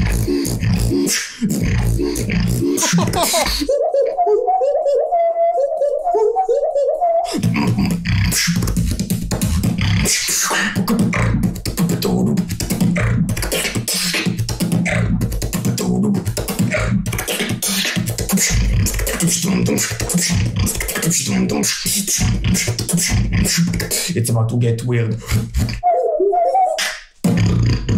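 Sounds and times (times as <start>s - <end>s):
beatboxing mouth percussion: 0.0s - 27.9s.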